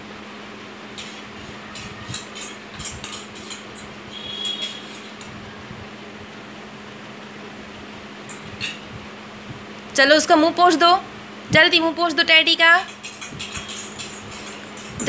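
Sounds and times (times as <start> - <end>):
spoon clinking against metal bowl: 1.0 - 5.3, 12.8 - 15.0.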